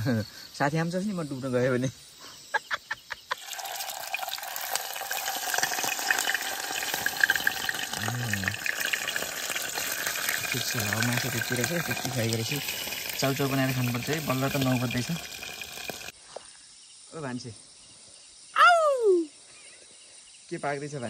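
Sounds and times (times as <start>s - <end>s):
food sizzling and crackling: 3.3s - 16.2s.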